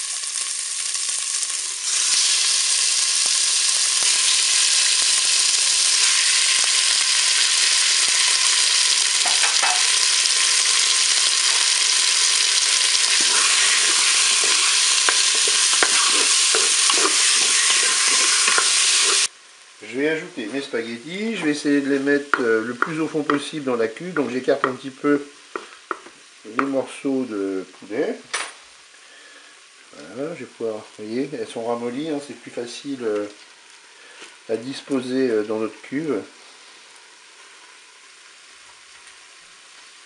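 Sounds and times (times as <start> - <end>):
chicken sizzling in oil: 0.0 - 27.7, 28.8 - 40.0
spatula scraping and clicking: 13.1 - 19.3.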